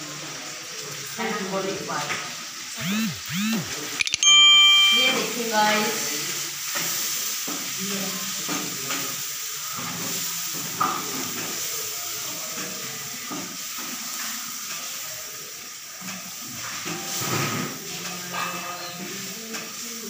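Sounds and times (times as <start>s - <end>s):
chicken sizzling in a wok: 0.0s - 4.0s, 4.7s - 20.0s.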